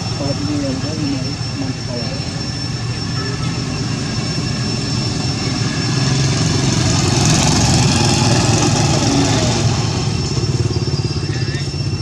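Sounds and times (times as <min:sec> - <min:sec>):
motor engine droning: 0:00.0 - 0:12.0
thin high whine: 0:00.0 - 0:12.0.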